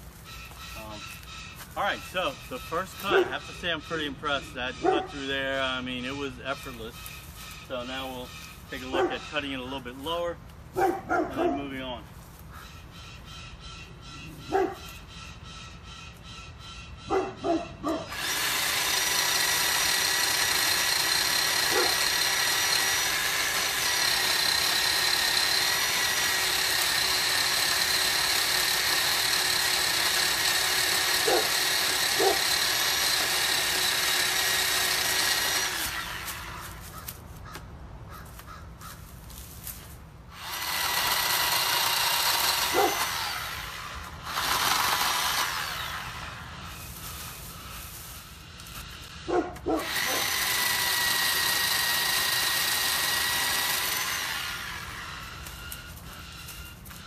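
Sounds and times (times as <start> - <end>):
electric chainsaw cutting wood: 2.2 - 10.2, 18.0 - 37.2, 40.3 - 57.0.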